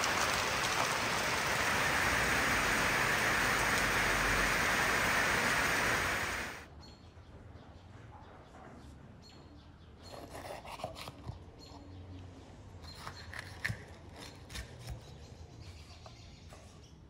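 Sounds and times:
rain splashing on wet surfaces: 0.0 - 6.7.

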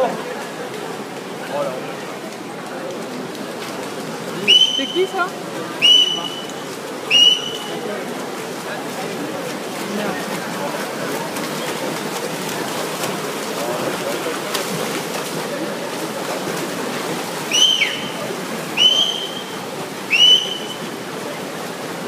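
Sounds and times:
crowd din echoing indoors: 0.0 - 22.0
shrill whistles: 4.5 - 5.0, 5.8 - 6.5, 7.1 - 7.7, 17.5 - 18.2, 18.8 - 20.9.

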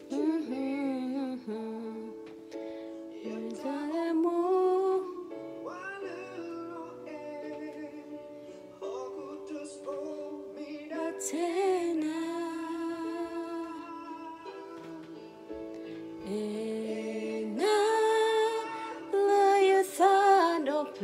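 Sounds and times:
person singing long notes: 0.0 - 2.3, 3.1 - 15.5.

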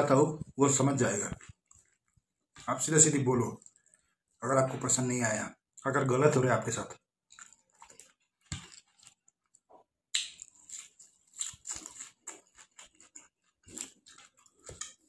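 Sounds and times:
man chewing with mouth open: 1.3 - 2.7, 7.2 - 15.0.

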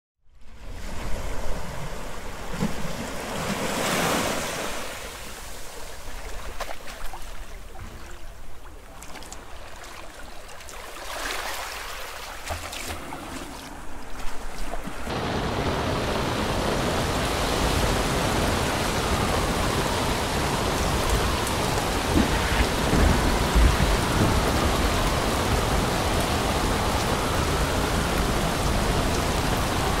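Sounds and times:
wind: 0.2 - 30.0
ocean waves: 0.4 - 30.0
heavy rain hissing: 15.1 - 30.0.

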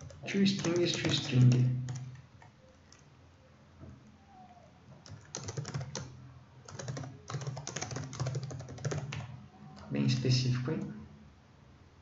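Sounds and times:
keyboard typing: 0.0 - 3.1, 5.0 - 10.2.

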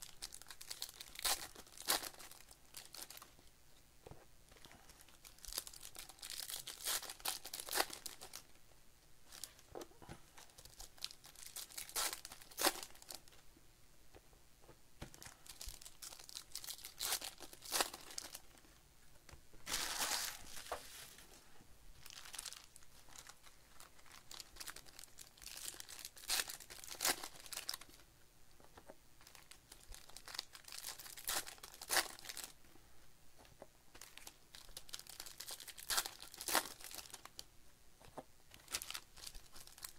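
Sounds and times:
wrappers torn open and crinkled: 0.0 - 3.2, 5.0 - 8.4, 10.5 - 13.2, 15.2 - 18.4, 22.0 - 28.0, 29.2 - 32.5, 34.0 - 37.4, 38.5 - 39.9.

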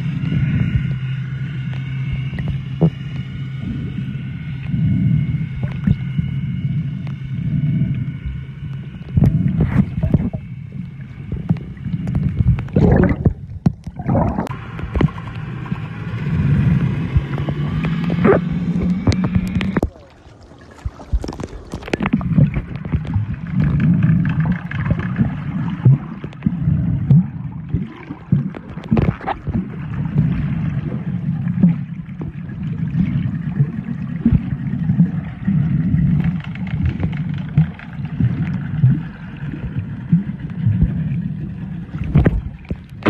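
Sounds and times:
muffled underwater churning: 0.0 - 43.0
bubbling and splashing clicks: 9.1 - 15.8, 17.1 - 41.1, 41.9 - 43.0.

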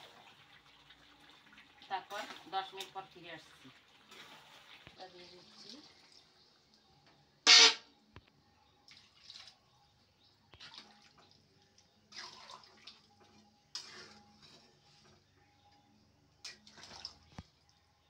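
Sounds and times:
spoon stirring curry: 13.1 - 17.7.

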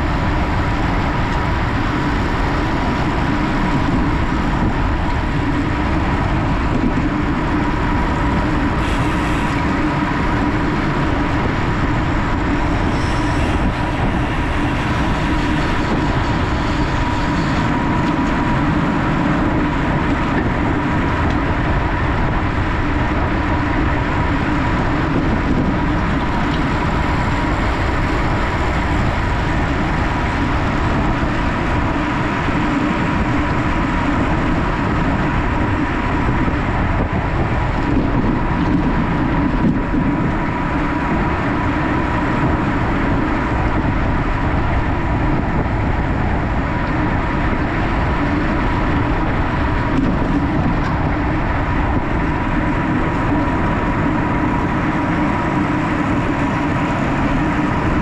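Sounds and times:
bicycle tyre noise: 0.0 - 58.0
wind on microphone: 0.0 - 58.0.

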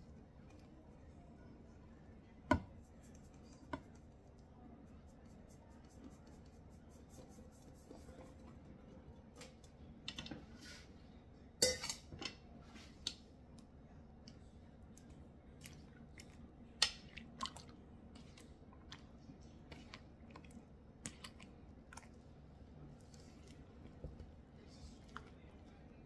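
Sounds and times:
hands mixing flour in bowl: 2.5 - 8.9, 14.9 - 26.0.

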